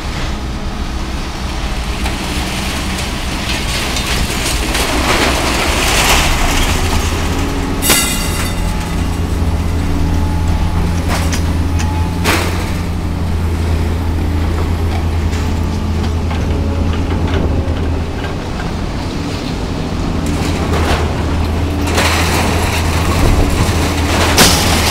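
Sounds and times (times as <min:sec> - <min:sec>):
diesel engine droning: 0:00.0 - 0:24.9
metal clatter: 0:02.6 - 0:13.1, 0:20.2 - 0:24.9.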